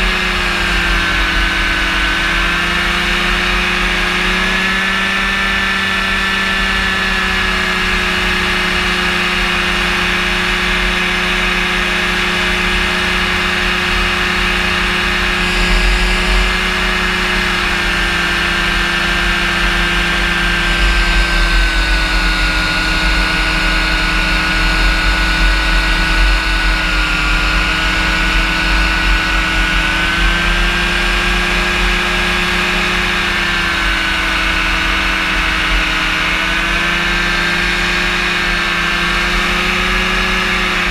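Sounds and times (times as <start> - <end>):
engine and propeller running: 0.0 - 40.9.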